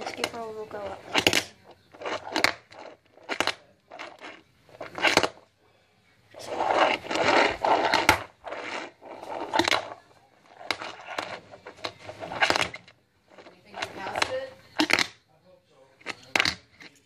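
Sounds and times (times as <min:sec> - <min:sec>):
fingerboard scraping on wood: 0:06.4 - 0:15.0.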